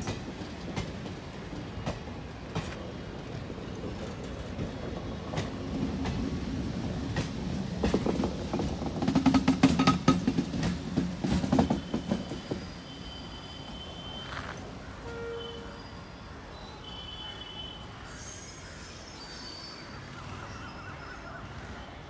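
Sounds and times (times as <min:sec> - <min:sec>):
train wheels clattering over joints: 0:00.0 - 0:13.0
diesel railcar passing: 0:00.0 - 0:22.0.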